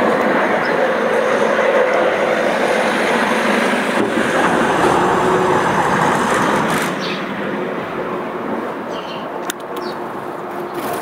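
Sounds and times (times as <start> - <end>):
passing vehicle rushing: 0.0 - 8.8.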